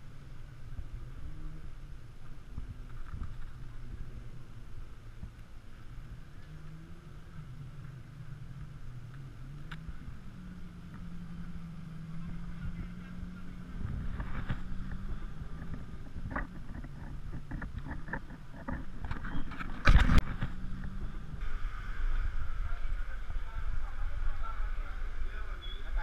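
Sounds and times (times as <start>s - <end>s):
low motor drone: 0.0s - 26.0s
clicks and rustles: 2.6s - 4.1s, 13.8s - 21.0s.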